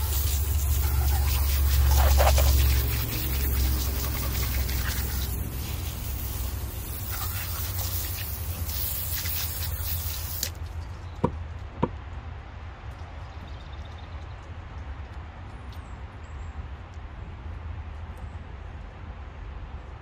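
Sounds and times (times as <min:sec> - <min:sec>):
hose spray nozzle hissing: 0:00.0 - 0:10.6.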